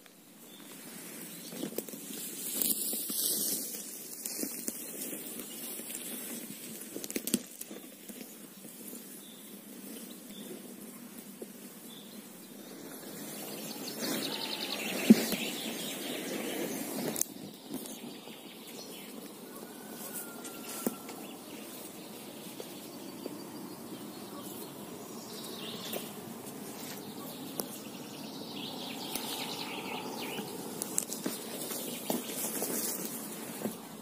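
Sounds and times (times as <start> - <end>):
kayak dragged over dry grass: 0.5 - 34.0
footsteps: 9.7 - 34.0
bird chirps: 11.9 - 33.4.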